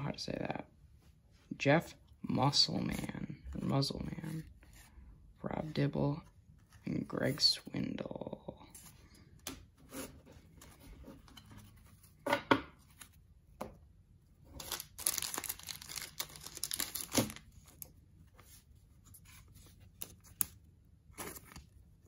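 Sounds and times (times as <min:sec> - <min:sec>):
wrapper tearing and crinkling: 0:14.5 - 0:17.9
wrapper snapping: 0:14.6 - 0:17.5.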